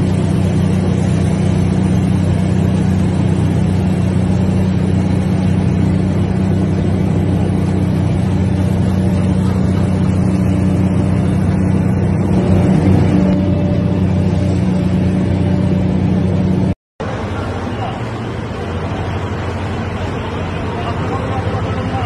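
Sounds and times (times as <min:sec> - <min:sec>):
heavy diesel engine droning: 0:00.0 - 0:22.0.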